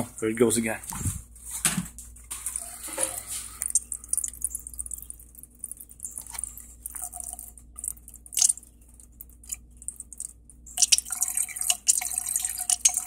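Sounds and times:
faint steady hum: 0.0s - 13.0s
coolant gurgling and spluttering: 2.8s - 13.0s.

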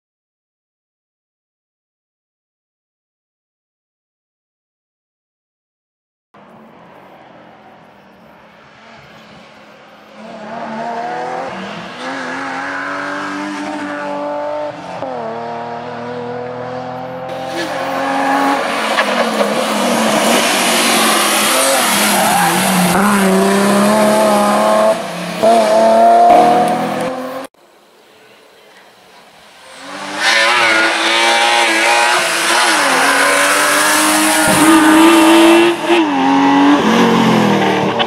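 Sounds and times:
car passing with rush: 6.4s - 27.5s, 29.3s - 38.0s
rally car engine revving: 10.1s - 27.5s, 29.6s - 38.0s.

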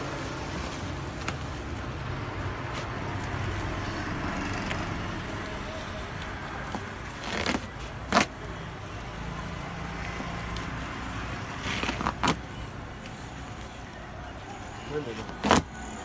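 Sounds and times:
plastic sack crackling: 0.0s - 4.3s, 6.7s - 8.6s.

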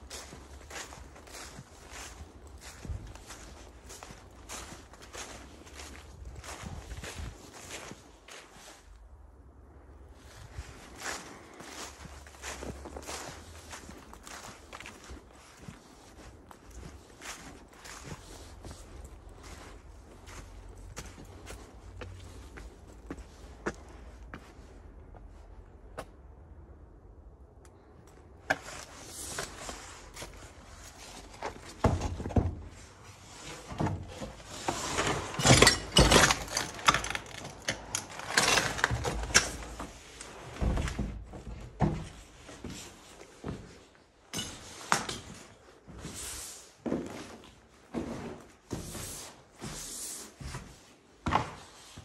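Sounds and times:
footsteps crunching over rubble: 0.0s - 26.4s, 27.8s - 49.8s
knocks and scrapes: 28.5s - 42.3s.

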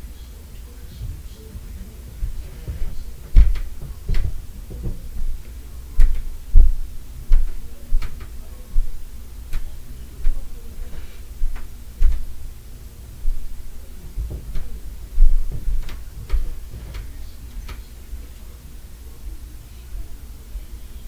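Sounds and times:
heavy footsteps through walls: 1.0s - 12.5s, 13.2s - 17.2s.

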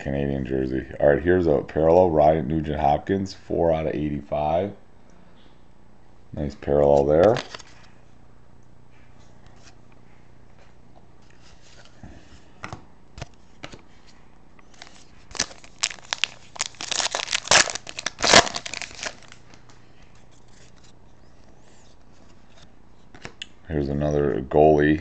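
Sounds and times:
foil wrapper crinkling and tearing: 14.7s - 19.5s.

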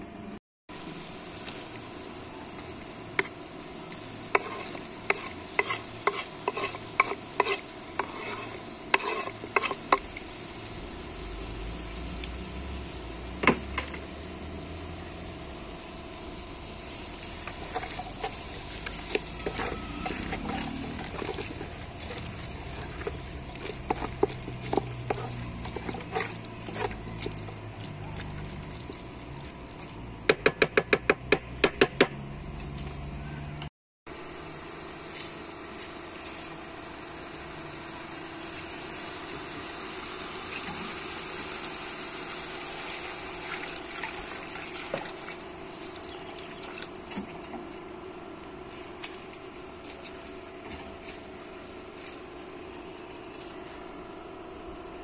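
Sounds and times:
steady sizzle: 0.7s - 30.2s, 34.1s - 55.0s
spoon stirring and knocking pot: 19.0s - 27.3s.

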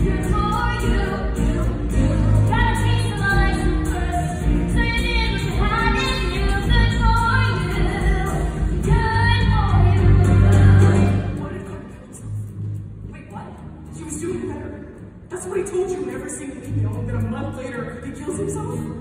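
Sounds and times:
woman singing: 0.0s - 11.6s
live band playing: 0.0s - 13.0s.

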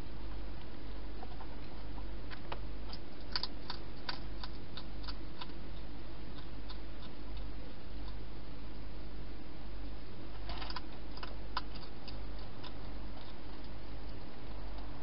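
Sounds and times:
steady low hum: 0.0s - 15.0s
hedgehog chewing clicks: 2.3s - 8.2s, 10.5s - 14.9s.

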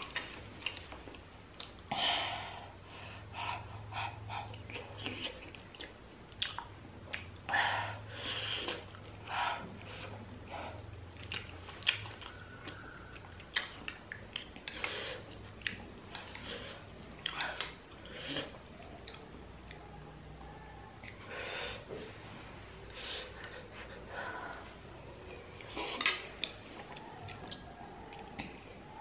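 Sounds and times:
chewing: 0.0s - 1.9s, 4.1s - 7.4s, 8.5s - 19.9s, 25.2s - 28.8s.

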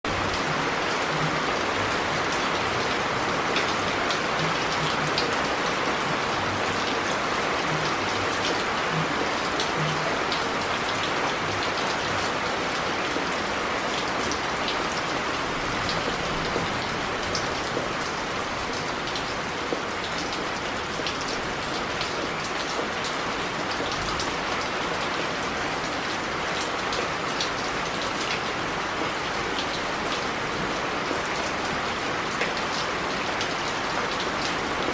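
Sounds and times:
rain on wet pebbles: 0.0s - 34.9s
raindrops ticking: 0.1s - 24.7s.

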